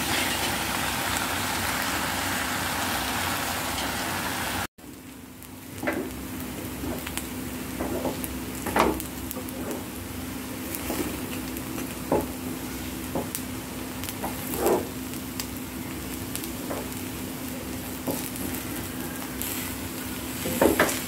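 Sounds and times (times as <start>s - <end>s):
wooden spatula scraping a pan: 14.2s - 14.9s.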